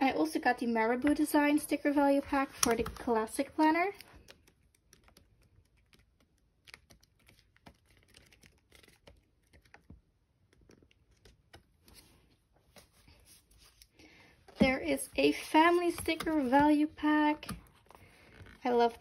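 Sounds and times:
paper pages flicking: 4.0 - 10.0.

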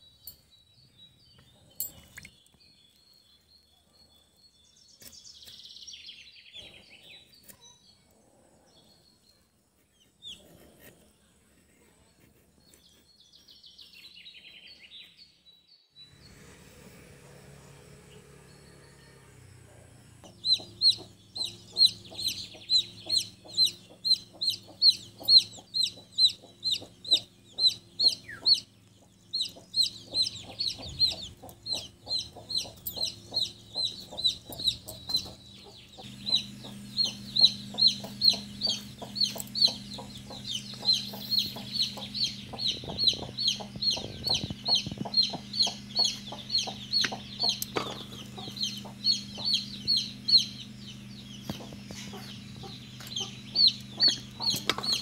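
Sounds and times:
chickens clucking: 19.6 - 55.0
chickens peeping: 19.6 - 55.0.

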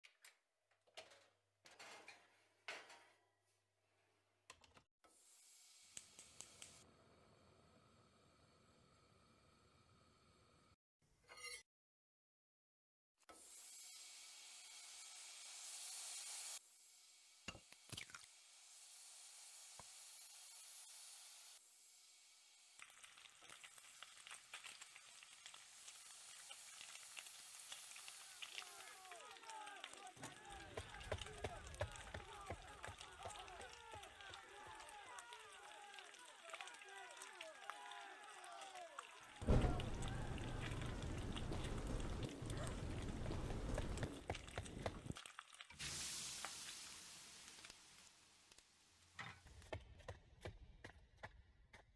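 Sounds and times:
oil sizzling in a frying pan: 5.1 - 6.8, 13.3 - 29.4, 45.2 - 49.2
gas burner hissing: 39.4 - 45.1, 45.8 - 48.6.

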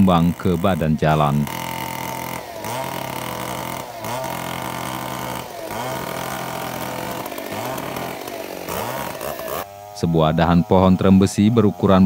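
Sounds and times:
chainsaw cutting wood: 0.0 - 12.0.

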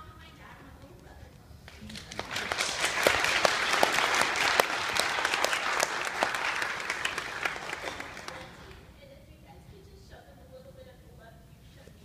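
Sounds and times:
crowd applauding: 1.7 - 8.8.

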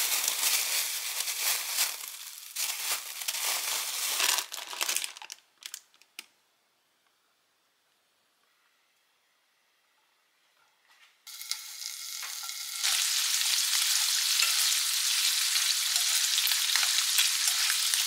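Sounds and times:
plastic bag crinkling: 0.0 - 6.3.

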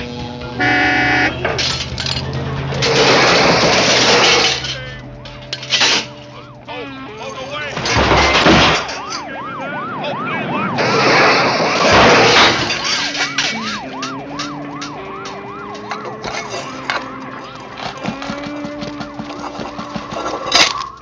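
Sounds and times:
police siren yelping: 0.0 - 21.0
loud bang: 10.5 - 14.1
loud noisy burst: 10.6 - 13.8.

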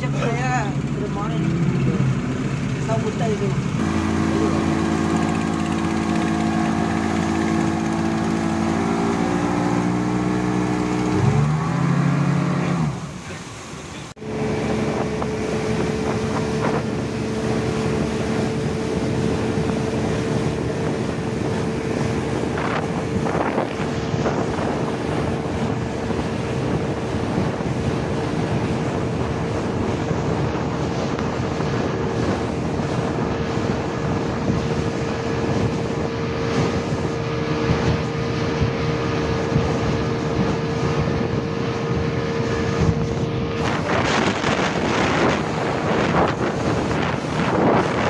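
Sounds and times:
outboard motor running: 0.0 - 48.0
water rushing past hull: 0.0 - 48.0
wind buffeting microphone: 14.2 - 48.0.

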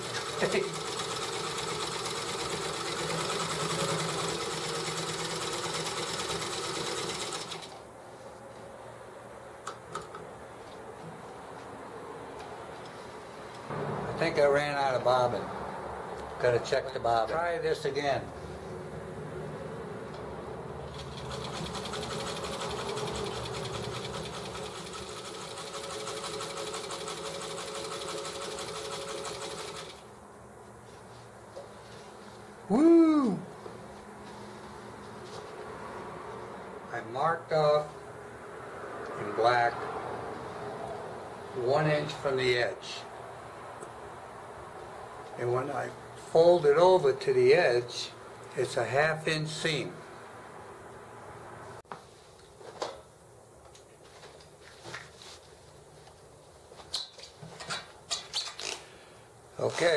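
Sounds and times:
sewing machine running: 0.0 - 7.8, 20.9 - 30.0.

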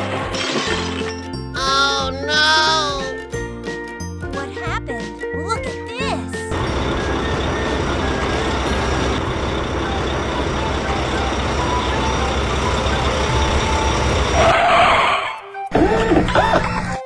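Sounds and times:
engines rumbling: 6.4 - 17.0.

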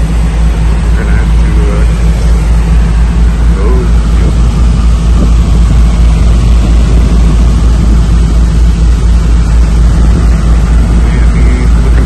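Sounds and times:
air conditioning unit humming: 0.0 - 12.0.

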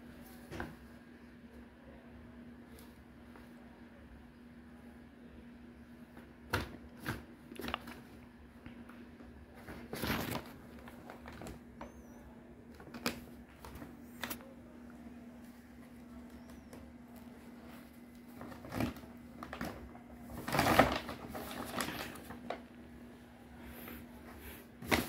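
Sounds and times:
faint steady hum: 0.0 - 25.0
paper bag crinkling and rustling: 9.6 - 12.0, 16.4 - 22.7, 24.8 - 25.0.

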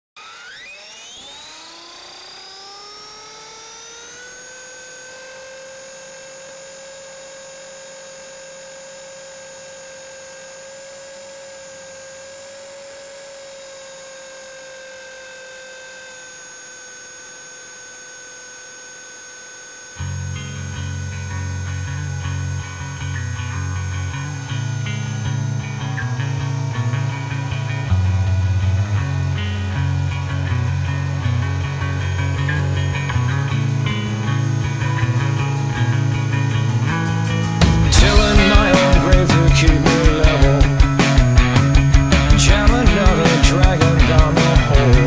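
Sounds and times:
rc helicopter motor whine: 0.2 - 45.0
guitar music: 20.0 - 45.0.

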